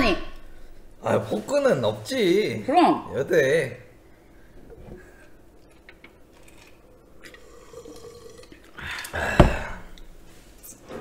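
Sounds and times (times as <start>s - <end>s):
sipping and swallowing beer: 7.1s - 10.0s.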